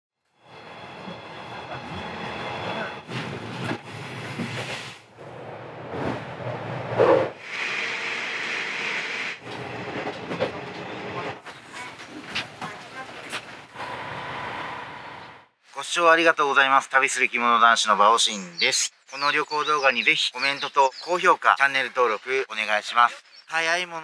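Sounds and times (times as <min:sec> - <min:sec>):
train rumbling on rails: 0:00.4 - 0:08.0, 0:09.4 - 0:15.5.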